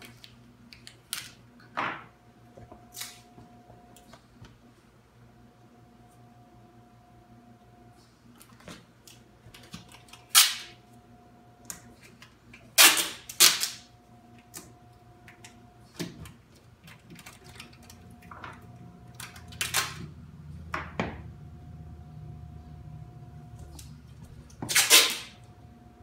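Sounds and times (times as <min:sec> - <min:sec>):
packing tape ripped off roll: 0:02.9 - 0:03.3, 0:09.6 - 0:10.8, 0:12.8 - 0:13.9, 0:24.6 - 0:25.4.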